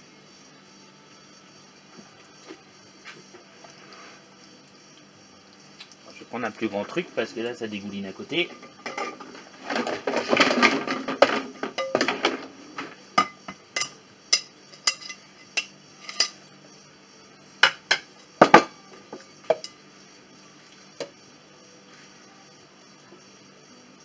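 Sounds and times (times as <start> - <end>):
bowls and utensils clinking: 8.4 - 16.4, 19.4 - 19.8.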